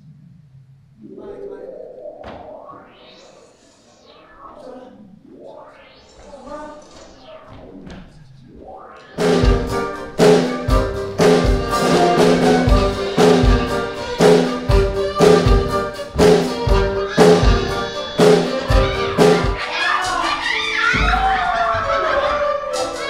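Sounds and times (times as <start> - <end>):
heavy drum beat: 9.2 - 19.6
upbeat live band music: 9.2 - 20.4.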